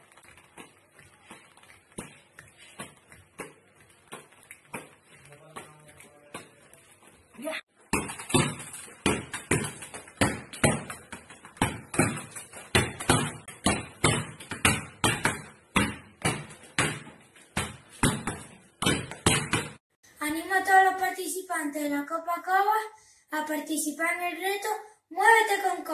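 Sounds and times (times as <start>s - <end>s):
football thudding against a wall: 7.9s - 19.8s.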